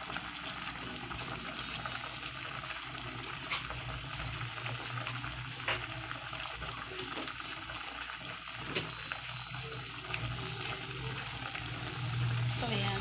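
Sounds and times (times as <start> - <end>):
soup boiling and bubbling: 0.0 - 13.0.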